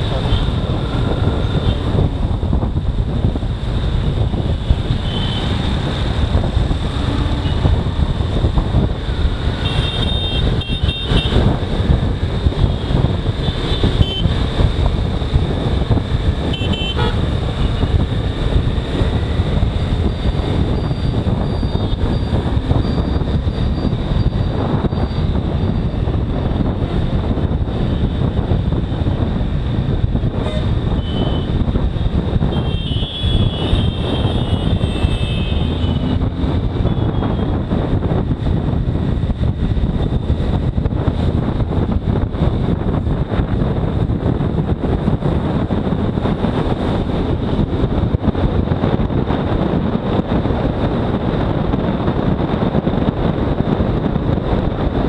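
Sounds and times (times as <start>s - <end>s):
wind rush: 0.0s - 55.0s
vehicle horn toots: 9.6s - 11.4s, 13.7s - 14.3s, 16.5s - 17.2s, 32.5s - 36.1s.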